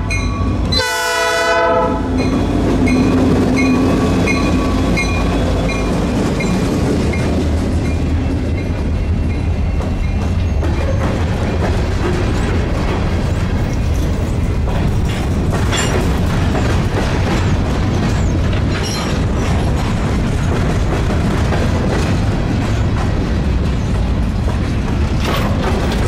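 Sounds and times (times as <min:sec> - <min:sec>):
diesel locomotive engine: 0:00.0 - 0:26.0
train cars rumbling: 0:00.0 - 0:26.0
locomotive horn blast: 0:00.7 - 0:02.2
wheels clicking on rails: 0:02.2 - 0:26.0.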